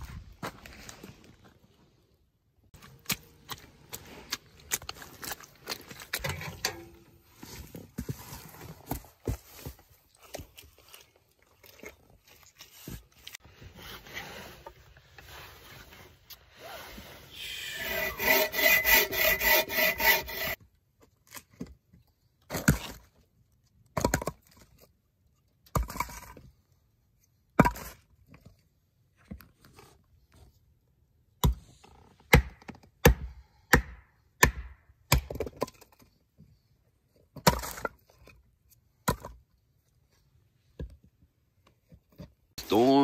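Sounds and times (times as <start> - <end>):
hand saw cutting log: 17.4 - 20.6
axe chopping firewood: 31.4 - 31.7, 32.3 - 35.8.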